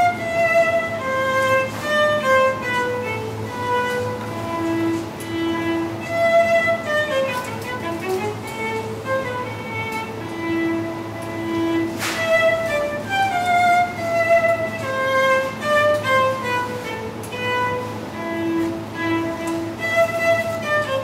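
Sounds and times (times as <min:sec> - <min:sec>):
solo cello bowed melody: 0:00.0 - 0:21.0.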